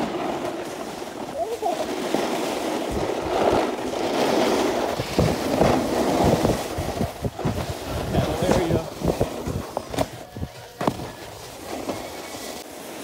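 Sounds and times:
snowboards scraping over snow: 0.0 - 13.0
wind buffeting microphone: 2.8 - 11.2.

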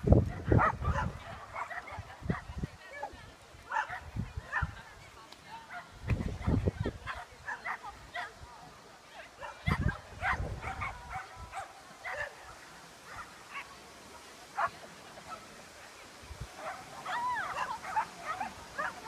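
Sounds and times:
dog barking and yipping: 0.4 - 2.4.

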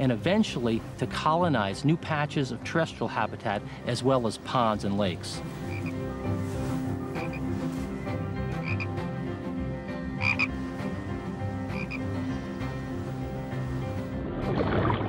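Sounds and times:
frogs chorus: 5.4 - 6.1, 7.2 - 7.7, 8.4 - 9.2, 9.9 - 13.1
sharp frog call: 5.4 - 6.1, 6.8 - 9.2, 10.0 - 13.7.

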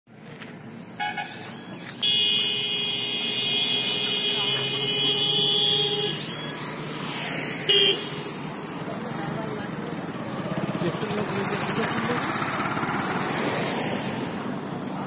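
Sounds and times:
passing traffic: 0.1 - 15.0
vehicle horns tooting: 1.0 - 6.6, 7.6 - 8.2.

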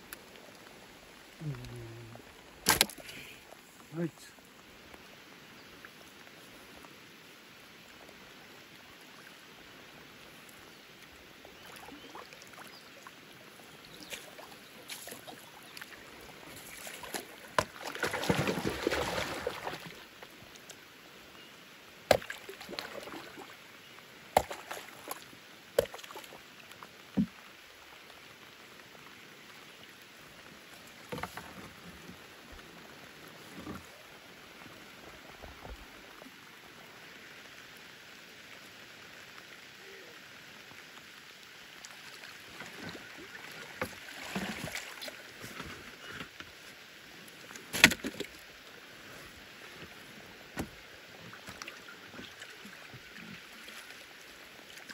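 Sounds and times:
rain pattering on water: 0.0 - 54.9
fish thrashing and splashing: 16.6 - 19.9.

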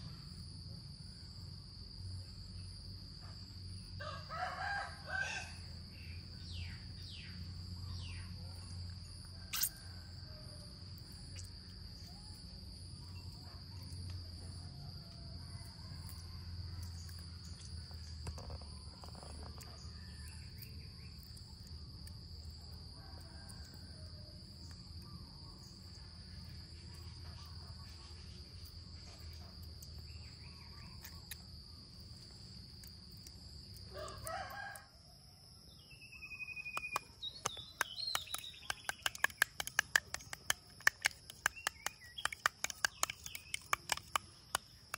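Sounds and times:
high insect drone: 0.0 - 44.9
rooster crowing: 4.0 - 5.8, 33.9 - 35.0
sharp clicks: 36.7 - 44.9.

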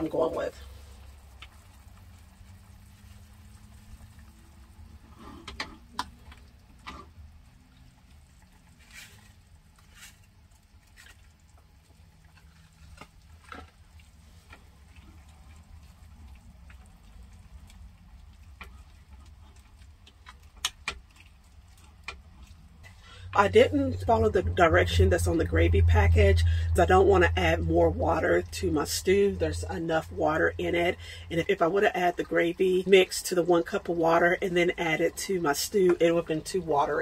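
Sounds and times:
low steady hum: 0.0 - 37.0
wooden spoon stirring stew: 0.5 - 26.4.

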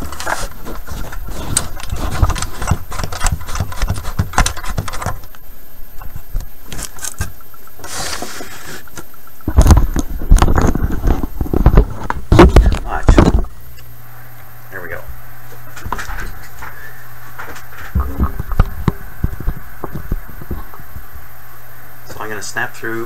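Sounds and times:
camera handling bumps and rubbing: 0.0 - 5.3.

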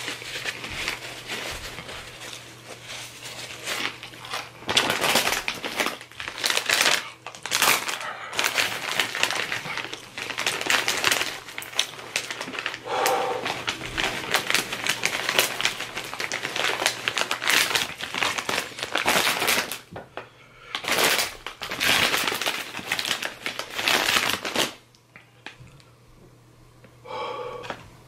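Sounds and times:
chips being crunched: 3.6 - 19.9, 20.8 - 24.9.

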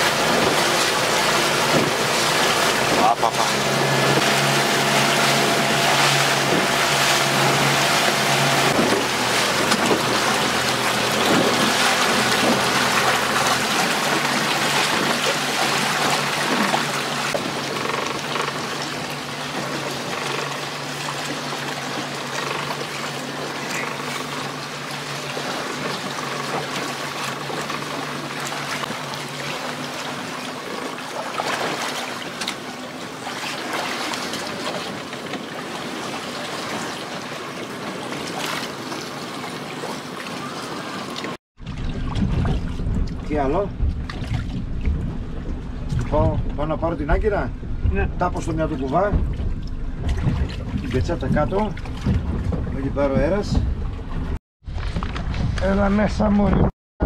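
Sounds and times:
boat engine running: 0.0 - 56.7
water rushing along hull: 0.0 - 56.7
wind on microphone: 41.6 - 56.7.

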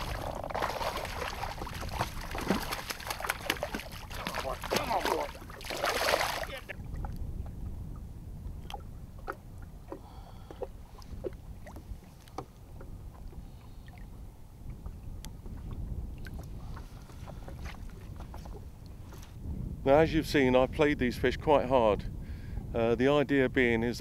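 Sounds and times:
small splashes: 0.0 - 6.7
water lapping against a boat hull: 0.0 - 19.4
wind rumble on microphone: 0.0 - 24.0.

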